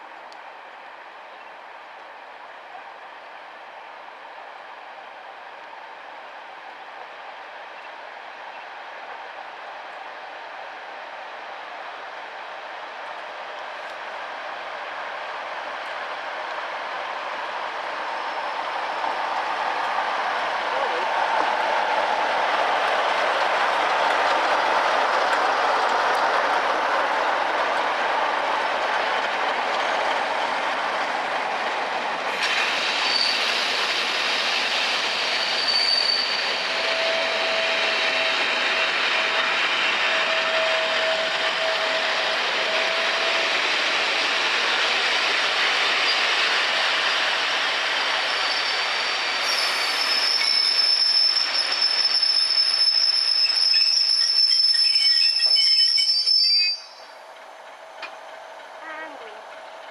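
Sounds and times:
train wheels on rail: 0.0 - 59.9
wheel squeal: 35.4 - 38.3, 48.3 - 57.0
higher-pitched squeal: 48.3 - 57.0.

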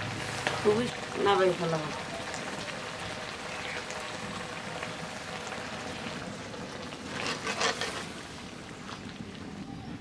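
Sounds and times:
curry simmering: 0.0 - 10.0
wood fire crackling: 0.0 - 10.0
pot scraping on ground: 6.9 - 9.1.

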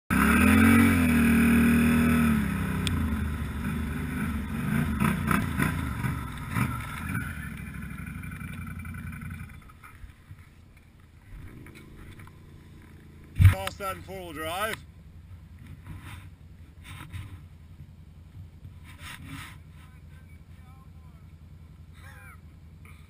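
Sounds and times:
atv engine running: 0.1 - 23.0
rattles from bumps: 4.7 - 20.6.

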